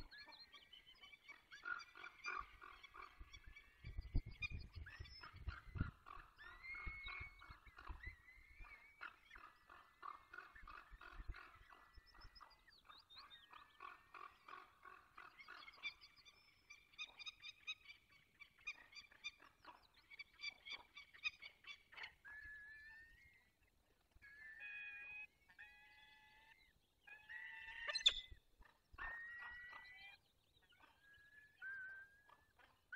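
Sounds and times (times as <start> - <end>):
falcon chicks calling: 0.0 - 22.3.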